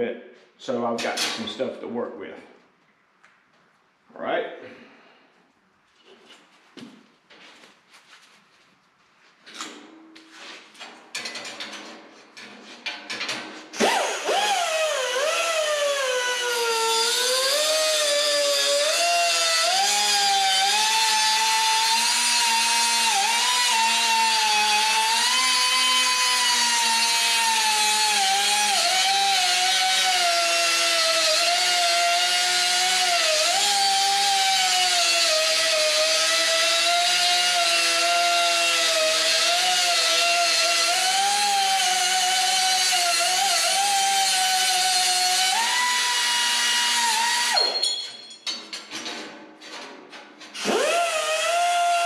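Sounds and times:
grinder cutting sheet steel: 13.4 - 49.8, 50.4 - 52.0.

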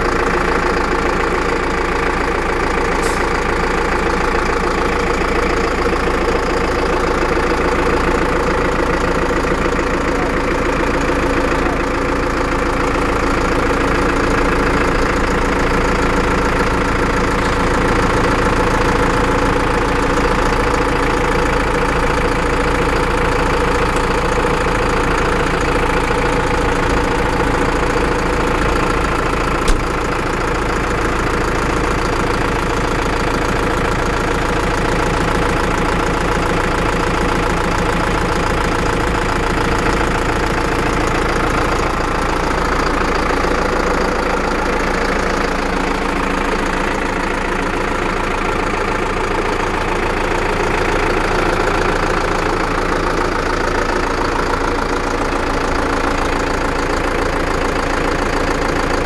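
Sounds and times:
tractor diesel engine idling: 0.0 - 59.0
sharp click: 29.6 - 29.9.

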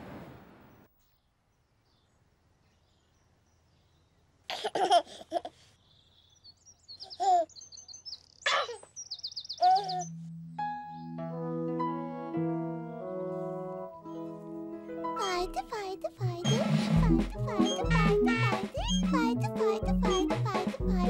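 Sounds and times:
baby giggling: 4.5 - 5.6, 7.1 - 7.5, 9.6 - 10.0, 15.2 - 21.0
birds chirping and trilling: 5.7 - 11.2, 16.5 - 20.7.

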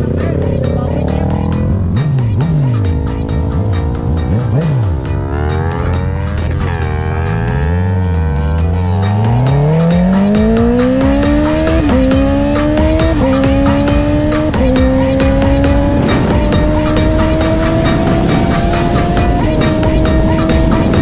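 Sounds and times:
background music with steady beat: 0.0 - 21.0
motorcycle accelerating and upshifting: 0.0 - 21.0.

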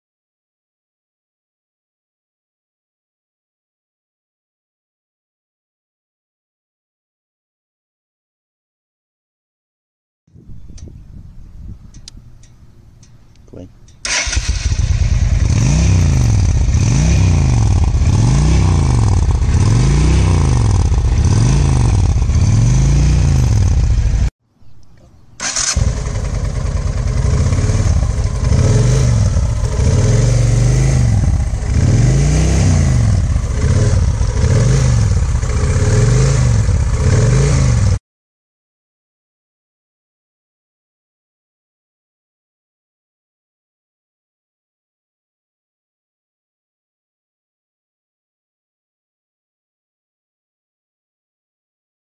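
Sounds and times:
motorcycle engine revving: 14.0 - 24.3, 25.4 - 38.0.

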